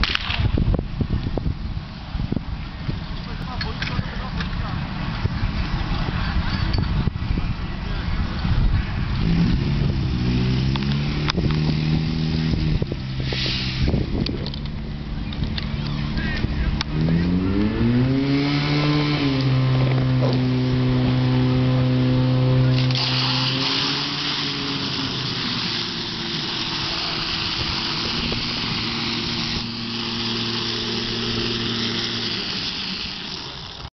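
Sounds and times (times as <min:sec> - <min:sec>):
pump engine running hard: 0:19.8 - 0:33.9
water jets hissing: 0:22.7 - 0:33.9.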